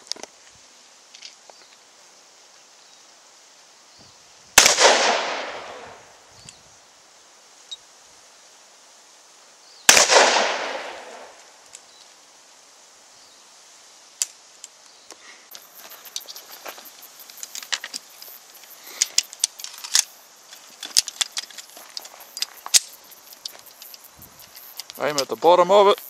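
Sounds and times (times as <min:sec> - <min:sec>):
handgun shots with echo: 0:04.6 - 0:05.8, 0:09.9 - 0:11.3
faint clicks: 0:14.2 - 0:26.0.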